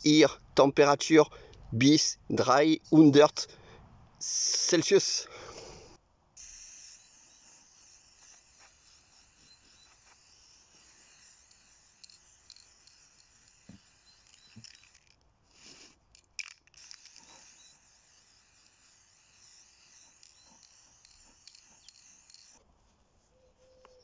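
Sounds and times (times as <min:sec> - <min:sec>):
spray-paint can hissing: 0:06.4 - 0:22.6.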